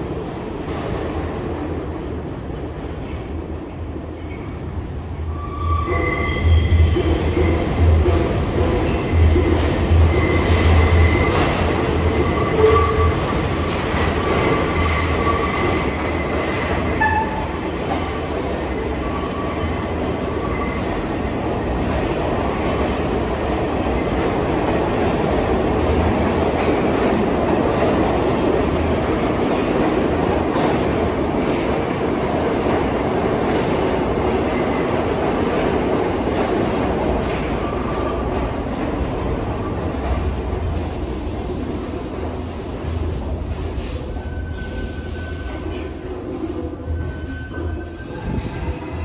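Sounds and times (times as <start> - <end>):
train rumbling: 0.0 - 49.0
train wheels squealing: 5.3 - 24.1, 33.4 - 38.3, 43.8 - 46.0, 46.8 - 49.0.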